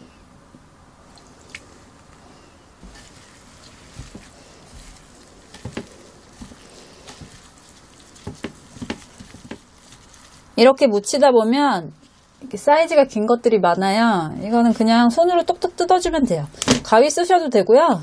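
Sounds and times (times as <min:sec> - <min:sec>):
wet squishing of mixing food: 0:01.1 - 0:10.7.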